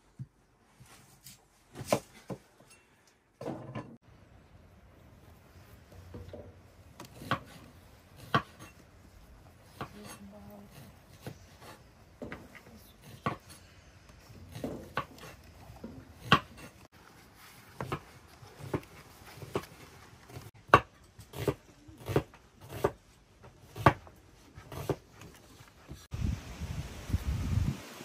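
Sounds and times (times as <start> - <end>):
knife chopping on wooden board: 16.2 - 16.7, 20.3 - 23.0, 23.7 - 25.0.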